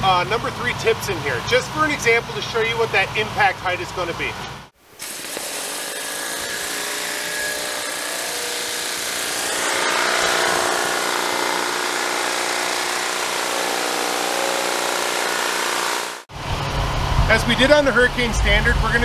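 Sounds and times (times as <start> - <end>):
pressure washer machine running: 5.0 - 16.3.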